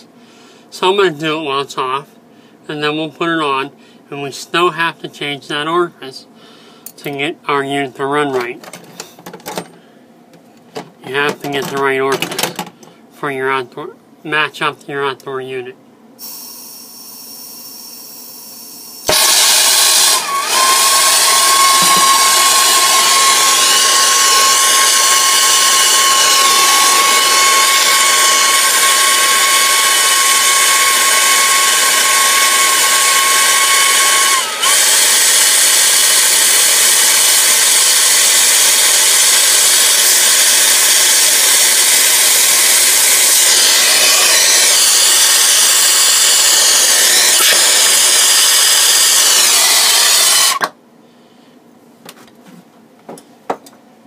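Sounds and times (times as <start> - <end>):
steady high whistle: 16.2 - 31.7.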